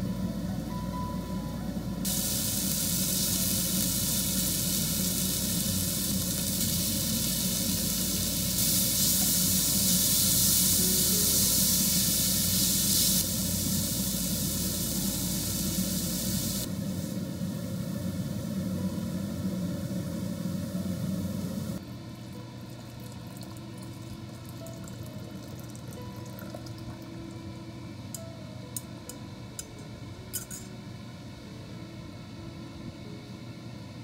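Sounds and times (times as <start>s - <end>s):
meat and fruit sizzling in a frying pan: 2.1s - 21.8s.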